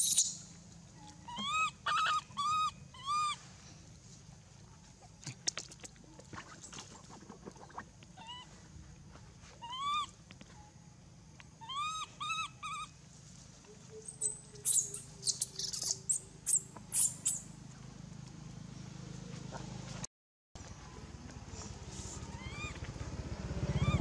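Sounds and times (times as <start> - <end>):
high-pitched monkey screams: 0.0 - 0.4, 1.2 - 3.4, 8.2 - 8.6, 9.6 - 10.2, 11.6 - 13.0, 14.1 - 17.4, 22.3 - 22.8
baby monkey cooing: 1.2 - 3.4, 9.6 - 10.2, 11.6 - 12.9, 14.0 - 17.4, 22.3 - 22.8.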